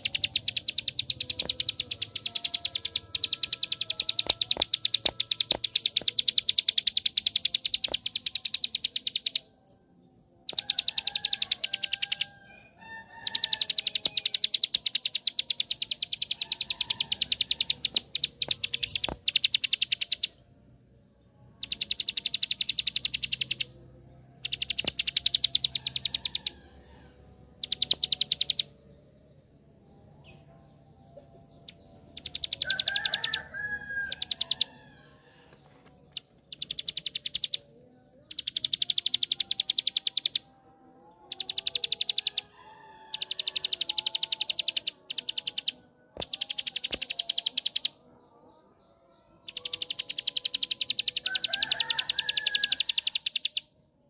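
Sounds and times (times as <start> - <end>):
bird singing fast high trill: 0.0 - 9.4, 10.5 - 12.3, 13.1 - 20.4, 21.5 - 23.8, 24.4 - 26.6, 27.6 - 28.8, 31.6 - 34.8, 36.5 - 40.6, 41.2 - 48.0, 49.5 - 53.7.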